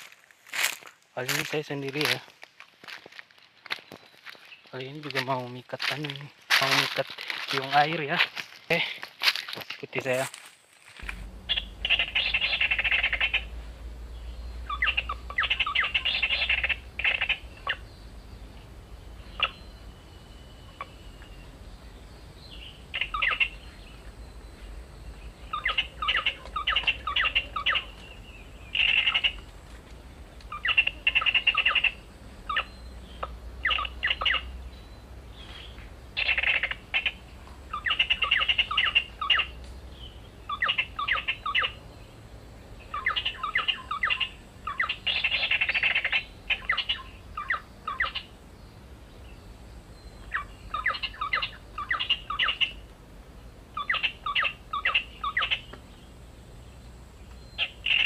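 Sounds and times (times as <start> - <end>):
bird chattering calls: 11.0 - 18.0, 19.2 - 19.7, 22.5 - 24.0, 25.4 - 29.5, 30.5 - 34.7, 35.4 - 39.6, 40.4 - 41.8, 42.8 - 48.4, 50.2 - 52.8, 53.8 - 55.8, 57.5 - 58.0.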